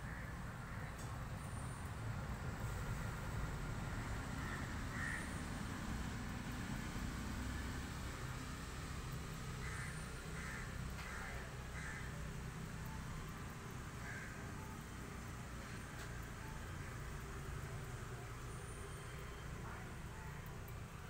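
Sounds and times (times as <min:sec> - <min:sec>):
crows cawing: 0:00.1 - 0:00.9, 0:04.4 - 0:05.4, 0:09.6 - 0:12.3, 0:14.0 - 0:14.5.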